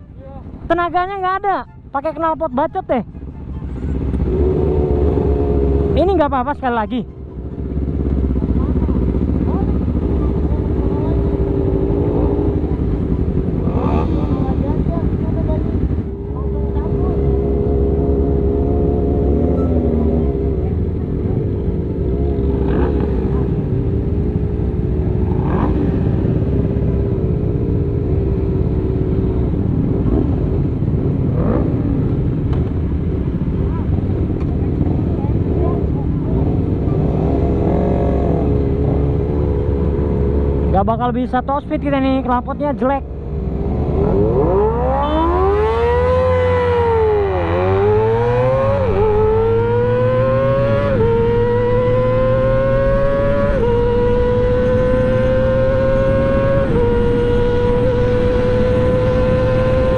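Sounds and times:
motorcycle engines idling: 1.8s - 44.1s.

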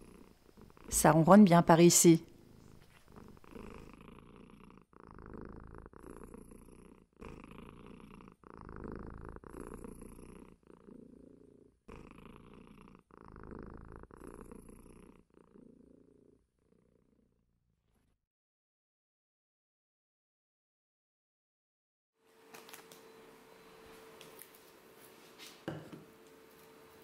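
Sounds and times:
cat purring: 0.0s - 18.2s.

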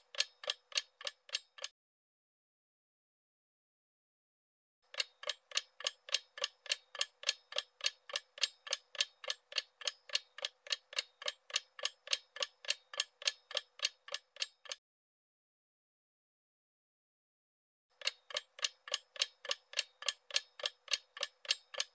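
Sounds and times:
clock ticking: 0.0s - 1.7s, 4.9s - 14.8s, 18.0s - 21.9s.

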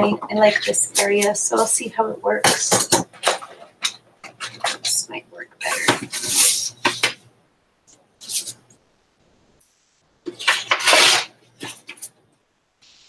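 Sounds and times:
paper rustling and crackling: 3.1s - 5.0s, 10.3s - 12.1s.

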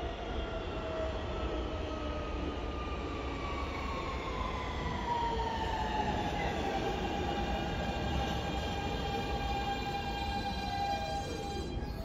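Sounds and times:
subway train motors whining: 0.0s - 12.0s
wheels rumbling on rail: 6.3s - 12.0s.

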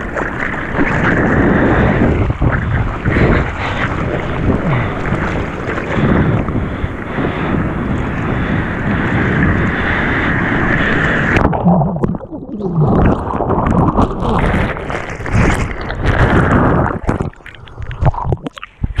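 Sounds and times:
breaking surf: 0.0s - 17.4s
wind buffeting microphone: 0.0s - 18.1s
churning underwater gurgling: 0.0s - 19.0s
camera knocking underwater: 11.4s - 19.0s.

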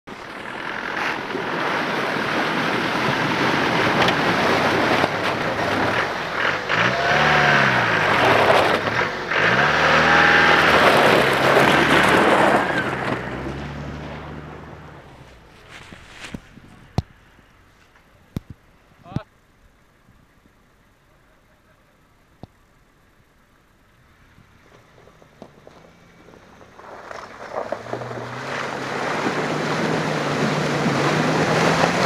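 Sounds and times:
truck engine revving: 0.1s - 17.7s, 24.4s - 32.0s.

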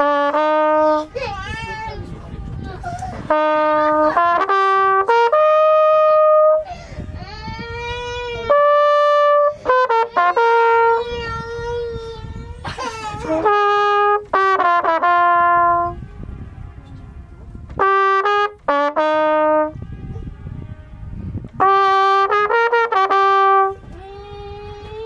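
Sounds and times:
horn echo off cliff: 0.0s - 1.9s, 3.2s - 6.6s, 13.3s - 23.9s
brass horn playing held notes: 0.0s - 6.7s, 8.4s - 11.0s, 13.1s - 24.0s.

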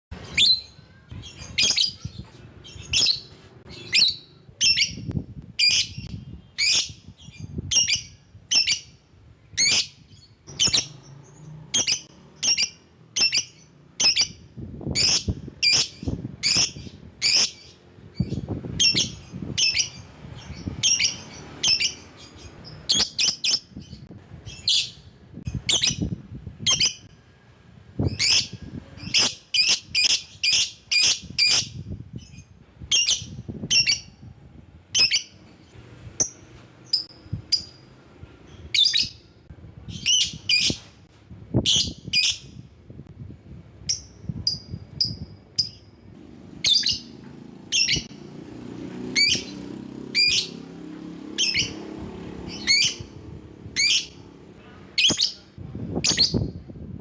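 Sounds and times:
bird chirping shrilly: 0.2s - 26.1s, 28.0s - 34.3s, 34.9s - 35.4s, 38.5s - 39.2s, 39.9s - 40.9s, 46.6s - 48.3s, 49.0s - 50.7s, 51.3s - 54.2s.

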